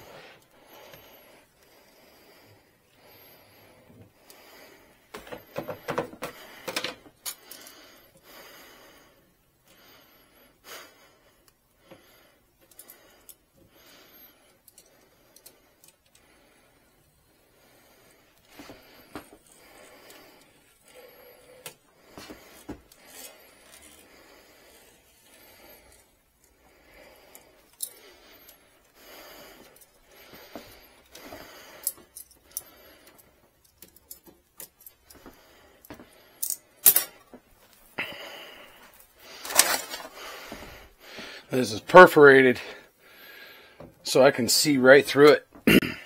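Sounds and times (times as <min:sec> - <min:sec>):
vinyl decal rustling and crinkling: 0:39.3 - 0:40.2.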